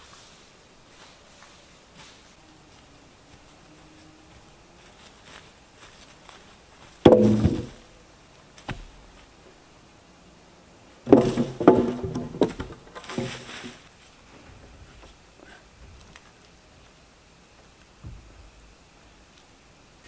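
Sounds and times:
heavy wooden thuds: 7.0s - 7.9s, 11.0s - 13.8s, 18.0s - 18.5s.

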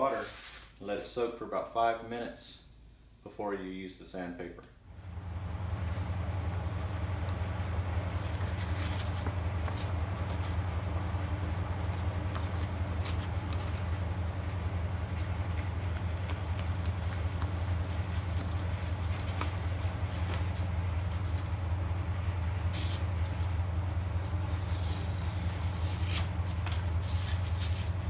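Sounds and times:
sandpaper rustling and crinkling: 0.0s - 0.8s, 7.3s - 21.6s, 22.7s - 28.0s
low machine hum: 4.5s - 28.0s.

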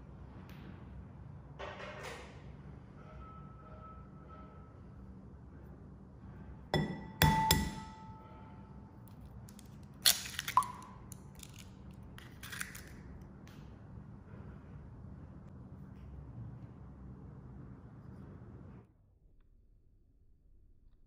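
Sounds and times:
egg knocking on ceramic bowl: 6.8s - 8.0s
bowl ringing: 6.8s - 9.0s.

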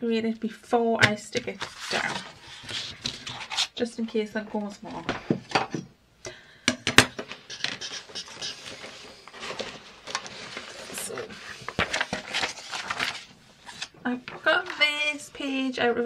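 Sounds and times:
paper rustling and sliding: 1.6s - 3.7s, 7.2s - 15.0s.

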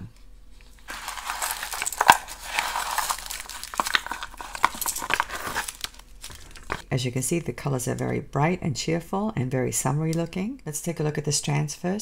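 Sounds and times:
plastic bags and tissue paper crinkling: 0.6s - 6.9s.

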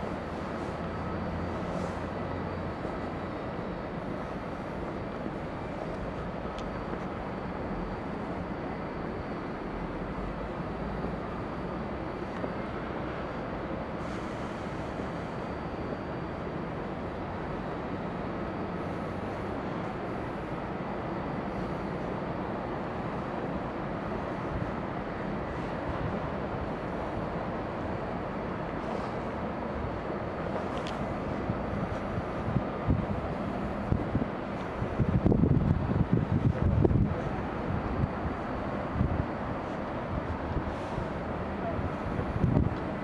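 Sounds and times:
city traffic hum: 0.0s - 43.0s.

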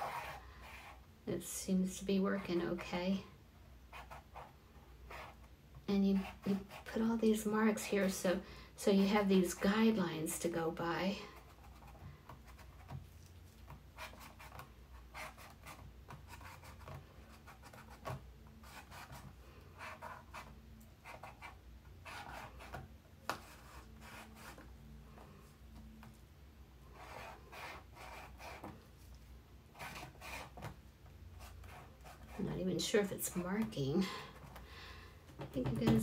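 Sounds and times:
marker tip scratching canvas: 0.0s - 1.0s, 3.9s - 5.5s, 13.7s - 24.7s, 27.0s - 28.8s, 29.7s - 30.8s, 31.4s - 32.5s.

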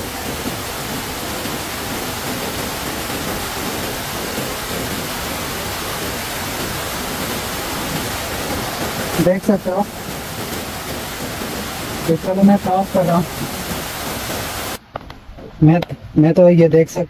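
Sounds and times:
waterfall rushing: 0.0s - 14.8s.

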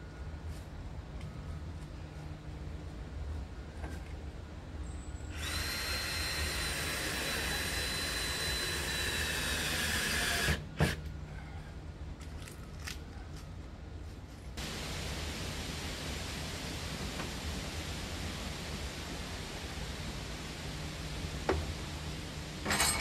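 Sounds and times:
cordless drill driving a screw: 5.3s - 11.0s
steady hiss: 14.6s - 22.7s.

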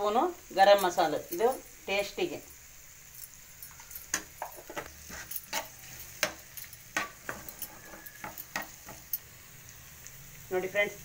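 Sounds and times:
faint frying sizzle: 0.0s - 11.0s
spoon scraping a frying pan: 3.7s - 9.2s.

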